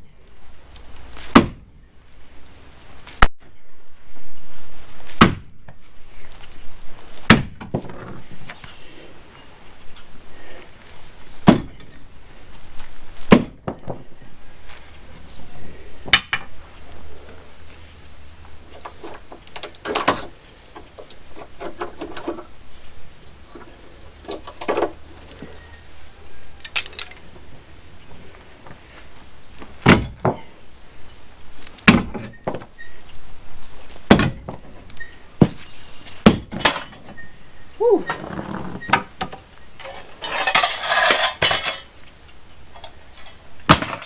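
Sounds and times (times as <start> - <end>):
hammer striking wood: 1.3 - 1.6, 34.1 - 34.5.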